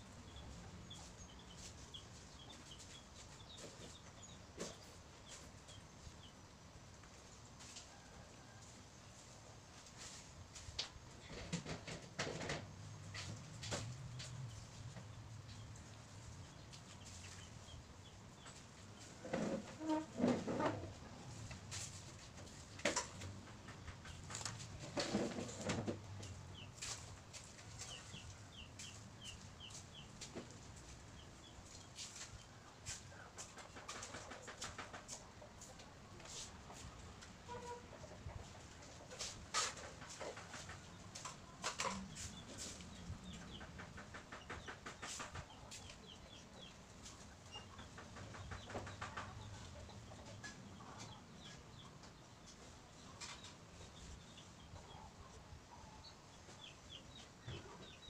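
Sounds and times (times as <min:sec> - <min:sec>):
small birds chirping: 0:00.0 - 0:06.6, 0:22.5 - 0:35.8
chicken clucking: 0:11.1 - 0:58.0.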